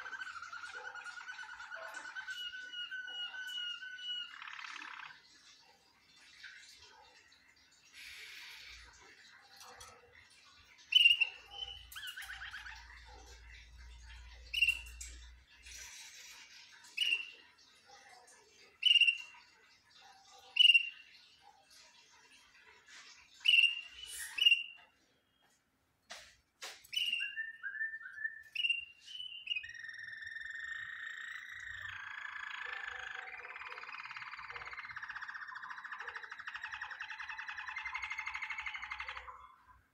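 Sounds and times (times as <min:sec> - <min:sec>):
canary chirping: 0:00.0 - 0:05.8, 0:08.0 - 0:21.2, 0:23.3 - 0:25.5, 0:26.6 - 0:39.9.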